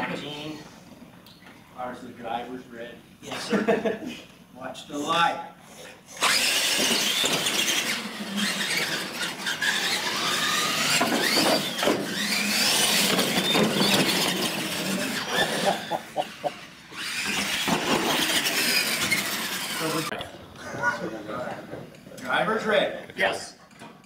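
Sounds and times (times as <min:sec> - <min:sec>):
rc truck electric motors whining: 0:05.7 - 0:20.2.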